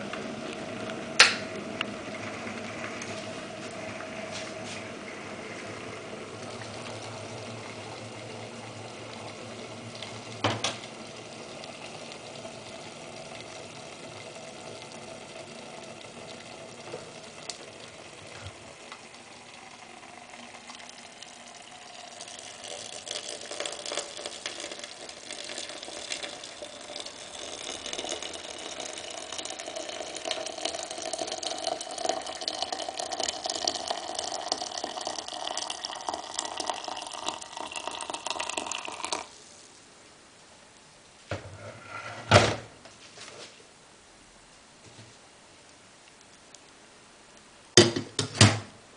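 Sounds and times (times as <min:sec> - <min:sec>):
hot water pouring into teapot: 0:00.0 - 0:39.8
electric kettle humming: 0:00.0 - 0:40.1, 0:47.6 - 0:48.9
kettle switch click: 0:01.2 - 0:01.4.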